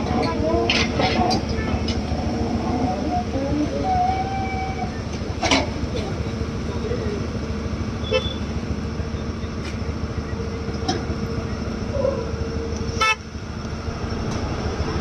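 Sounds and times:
diesel engine running: 0.0 - 15.0
held whine: 0.0 - 15.0.

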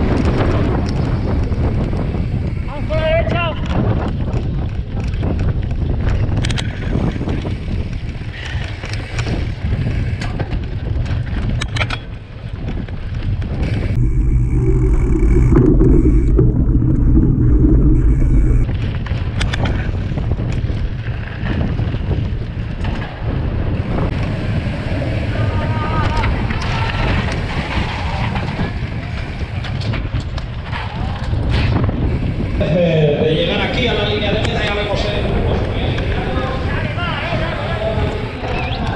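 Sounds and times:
wind buffeting microphone: 0.0 - 38.9
dull low rumble: 13.6 - 18.9.

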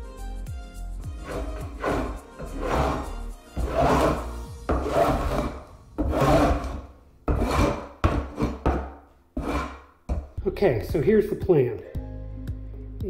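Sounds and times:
scraper rasping across subfloor: 1.1 - 9.9.

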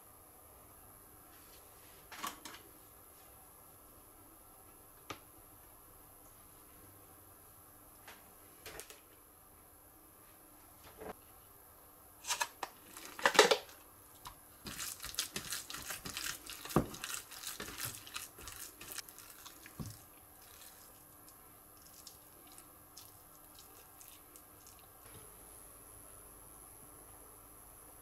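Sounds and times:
plastic tray crinkling: 12.3 - 21.0
hand kneading raw mince: 14.1 - 25.1.

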